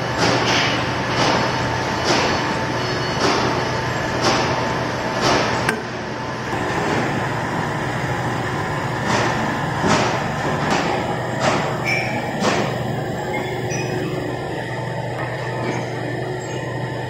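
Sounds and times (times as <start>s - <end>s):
testing machine humming: 5.6s - 17.0s.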